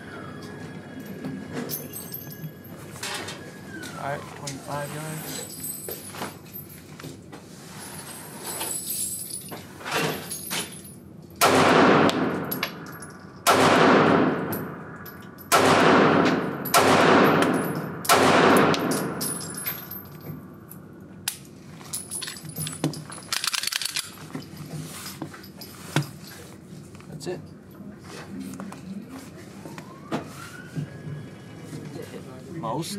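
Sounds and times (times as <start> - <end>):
pistol shots: 11.4 - 12.8, 13.4 - 14.9, 15.5 - 19.2.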